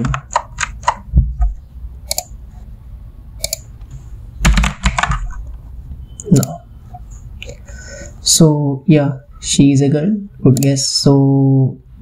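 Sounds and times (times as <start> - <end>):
computer keyboard keys clicking: 0.0 - 1.0, 3.4 - 3.6.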